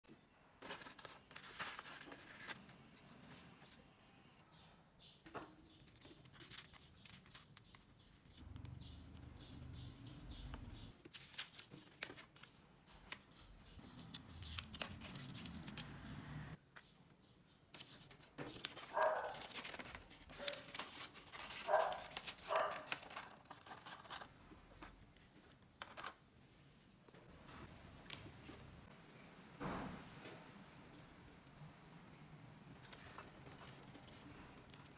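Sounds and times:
paper crinkling: 0.6 - 3.8, 5.8 - 8.6, 10.9 - 16.4, 17.7 - 26.2
cardstock folding and creasing: 5.9 - 8.4, 11.0 - 16.4, 17.7 - 24.9.

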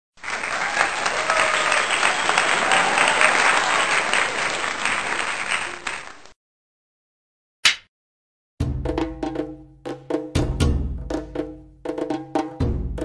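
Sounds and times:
crowd applauding: 0.1 - 6.4.

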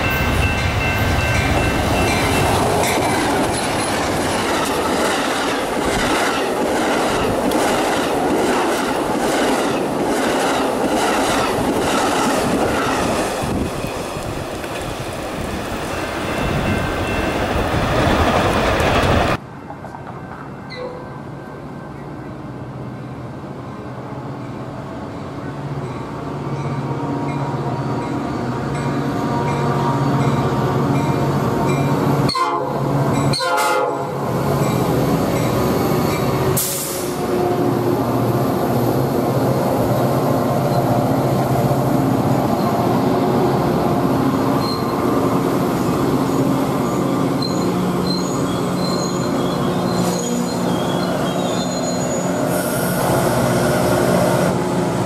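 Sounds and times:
train cars rolling past: 0.0 - 32.3, 34.1 - 55.0
train horn: 29.1 - 30.9, 31.6 - 34.3, 36.6 - 38.1, 52.5 - 55.0
high wheel squeal: 44.6 - 45.1, 46.2 - 54.5.

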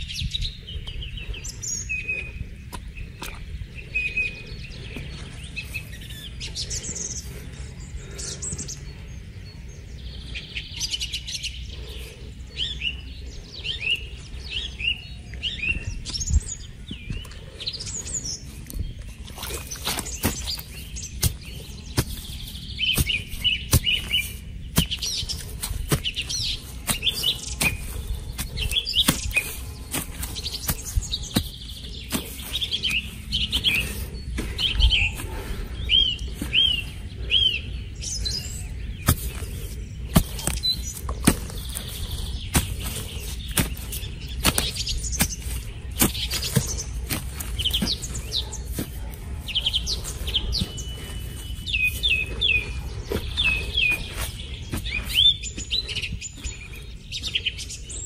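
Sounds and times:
small birds chirping: 0.0 - 58.0
dirt clods pattering: 15.3 - 58.0
stick scraping into dry soil: 18.7 - 37.0, 39.0 - 55.7.

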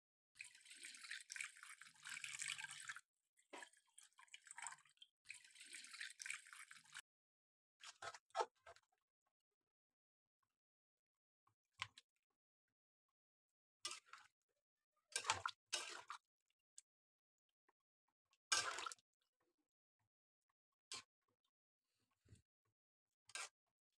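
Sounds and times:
water pouring and splashing in wok: 0.4 - 7.0, 18.5 - 19.0.

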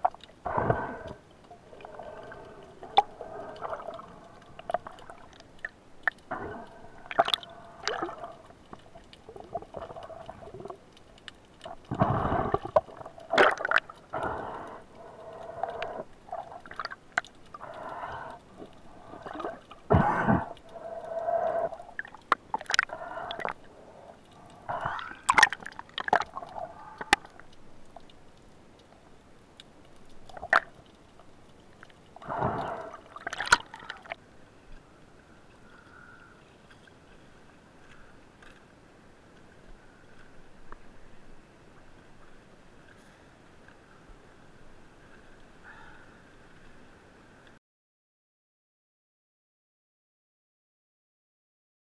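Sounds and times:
bursts of water movement: 0.0 - 28.2, 32.1 - 34.2
underwater gurgling and swishing: 0.0 - 47.6.

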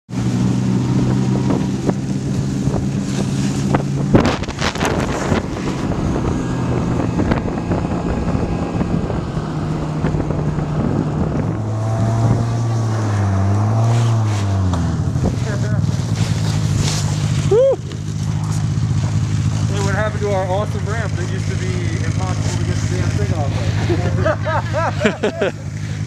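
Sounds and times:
snowmobile engine running: 0.1 - 26.0
wind noise on microphone: 0.4 - 16.8.

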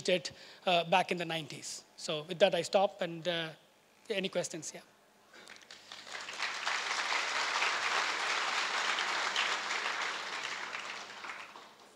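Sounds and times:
audience applauding: 5.5 - 11.9.

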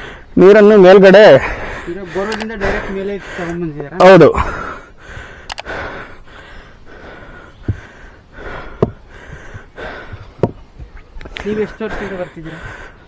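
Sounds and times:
person breathing close: 0.0 - 0.3, 4.3 - 10.5, 11.5 - 13.0
sharp clicks: 2.2 - 2.7, 5.4 - 5.8.

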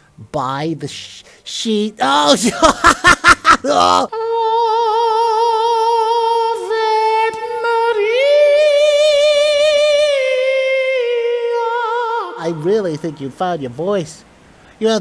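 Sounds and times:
high singing voice with vibrato: 3.7 - 12.7.

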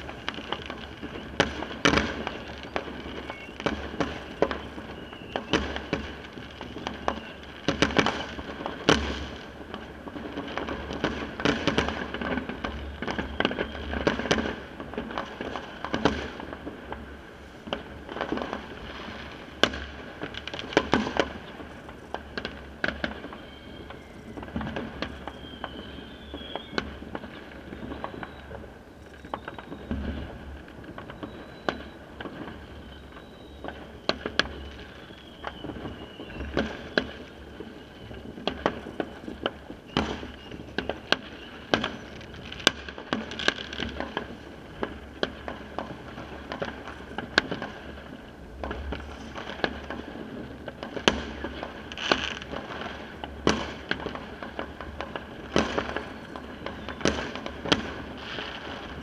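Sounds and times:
firework whistle falling: 0.0 - 9.4, 10.9 - 14.6, 18.3 - 44.4, 55.6 - 59.0
firecrackers banging: 0.0 - 59.0.

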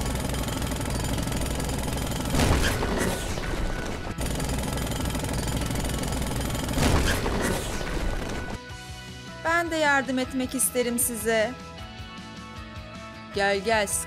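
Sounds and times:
loud mechanical rattling: 0.0 - 8.6.

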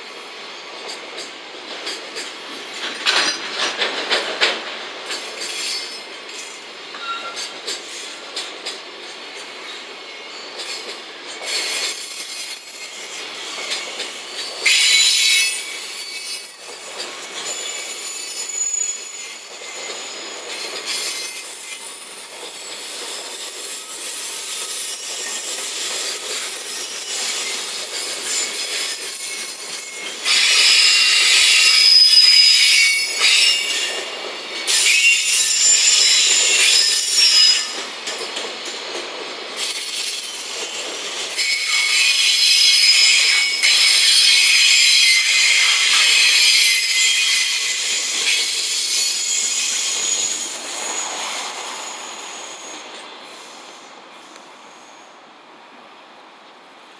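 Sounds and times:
train wheels rumbling on rails: 0.0 - 56.9
high-pitched wheel squeals: 5.0 - 7.6, 29.2 - 34.0, 41.4 - 51.6.

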